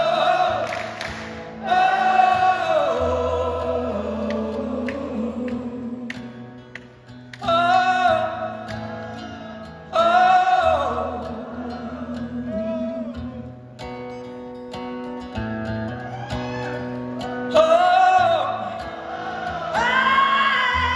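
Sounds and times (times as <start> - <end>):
man singing: 0.0 - 1.0, 1.6 - 6.3, 7.4 - 13.5, 17.4 - 20.9
strummed acoustic guitar: 0.0 - 20.9.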